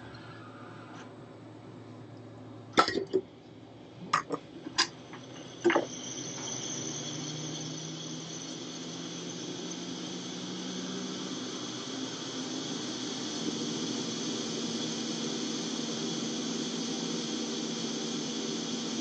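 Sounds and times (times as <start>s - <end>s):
blower rushing with faint whine: 0.0s - 19.0s.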